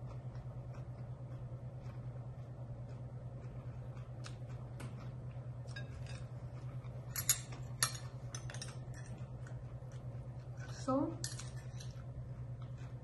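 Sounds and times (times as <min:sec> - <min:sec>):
steady low hum: 0:00.0 - 0:13.0
utensils clinking against dishes: 0:05.7 - 0:06.3, 0:07.1 - 0:09.3, 0:10.6 - 0:12.0.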